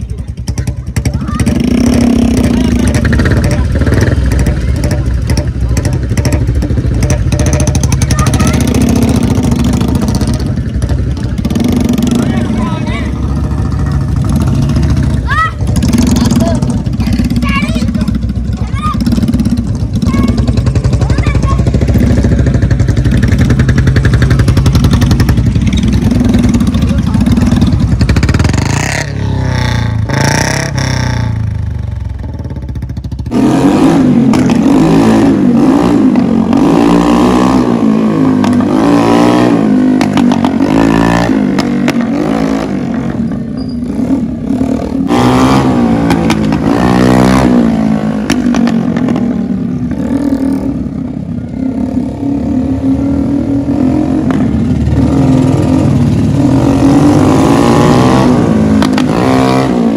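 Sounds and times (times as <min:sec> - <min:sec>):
tractor engine running: 0:00.0 - 0:33.4
motorcycle engine revving: 0:00.0 - 0:59.9.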